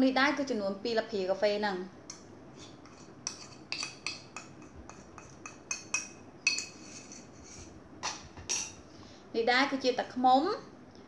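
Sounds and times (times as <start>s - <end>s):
metal spoon clinking in ceramic bowl: 3.2s - 7.3s, 8.0s - 8.8s.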